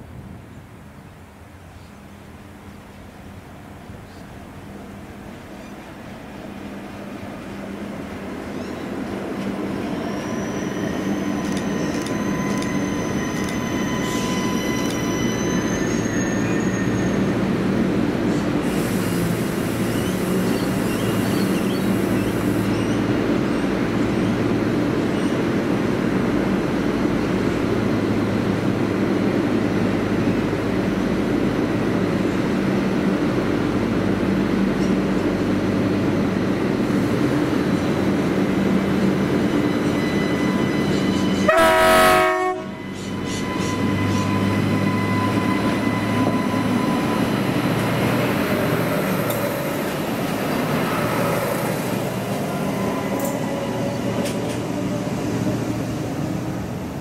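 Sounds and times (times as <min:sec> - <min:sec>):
railcar brakes squealing: 0:08.4 - 0:24.4, 0:38.6 - 0:56.9
air hiss: 0:18.6 - 0:22.7.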